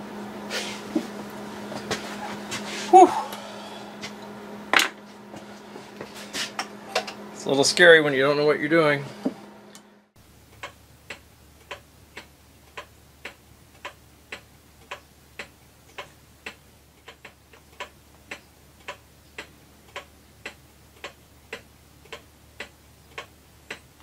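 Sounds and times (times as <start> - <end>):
pendulum clock ticking: 10.4 - 24.0.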